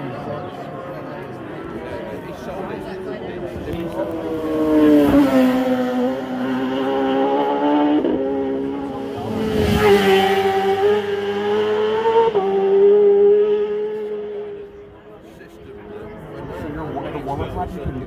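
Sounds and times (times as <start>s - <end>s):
motorbike engine at high revs: 3.6s - 14.9s.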